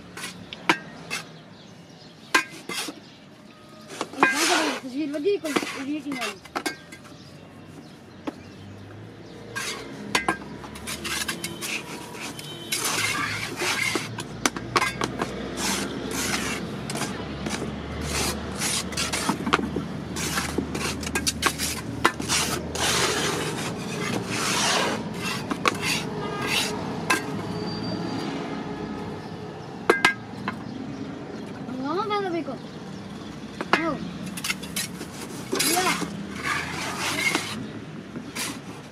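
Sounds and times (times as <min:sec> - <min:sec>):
trowel scraping wet mortar: 0:00.0 - 0:01.4, 0:02.4 - 0:03.0, 0:03.9 - 0:07.1, 0:09.4 - 0:27.4, 0:34.3 - 0:37.7.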